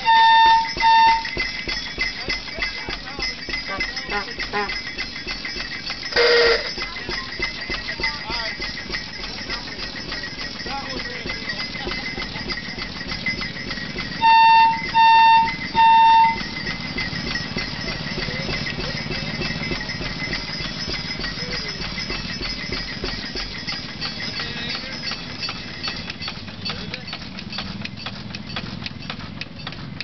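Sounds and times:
short horn blasts: 0.0s - 1.3s, 4.1s - 4.8s, 6.2s - 6.8s, 14.2s - 16.4s
flywheel gas engine clattering: 0.0s - 30.0s.

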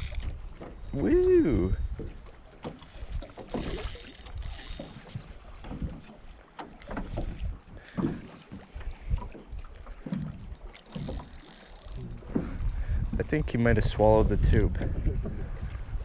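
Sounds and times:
fishing reel whirring: 0.0s - 0.3s, 3.4s - 5.2s, 10.5s - 12.2s
wind buffeting microphone: 0.0s - 6.0s, 7.0s - 16.0s.

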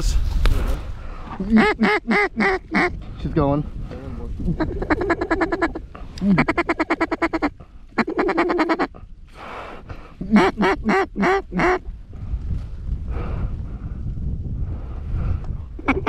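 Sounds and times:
duck call quacks: 1.5s - 2.9s, 4.6s - 9.0s, 10.2s - 11.8s
duck call chatter: 1.5s - 3.0s, 4.6s - 9.0s, 10.2s - 11.8s.

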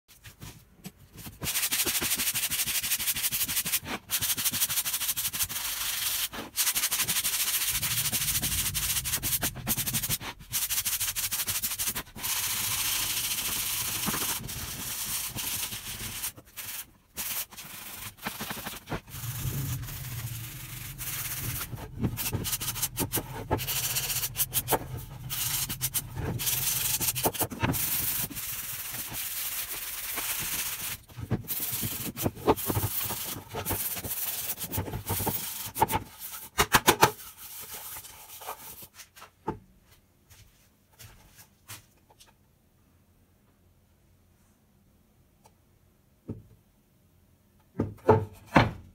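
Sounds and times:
sandpaper scraping on wood: 1.4s - 36.5s
low hum: 19.0s - 27.2s.

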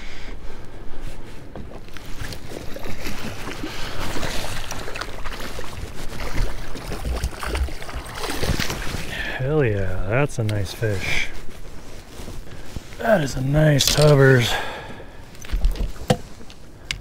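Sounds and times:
fish splashing water: 1.9s - 9.1s.

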